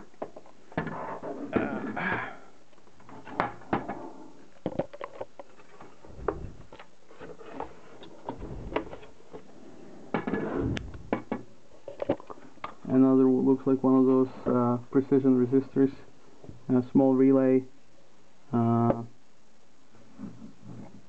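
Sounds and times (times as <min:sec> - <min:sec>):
scraping and rustling: 0:03.0 - 0:12.6.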